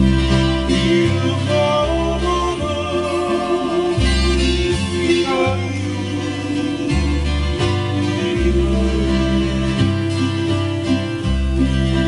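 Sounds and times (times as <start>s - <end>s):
man singing: 0.0s - 11.3s
deep bass line: 0.0s - 12.0s
plucked acoustic strings: 0.0s - 12.0s.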